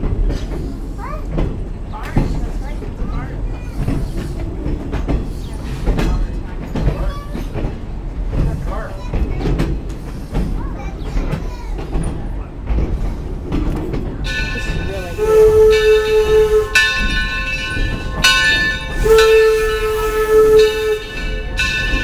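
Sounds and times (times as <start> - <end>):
running train: 0.0 - 22.0
bell ringing: 14.3 - 20.0, 20.6 - 22.0
steam locomotive whistle blasts: 15.1 - 17.2, 18.8 - 21.4.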